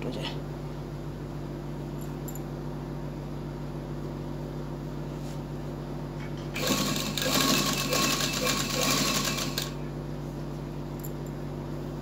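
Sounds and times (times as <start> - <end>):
sewing machine stitching whirr: 6.6 - 9.8
sewing machine hum: 6.6 - 9.9.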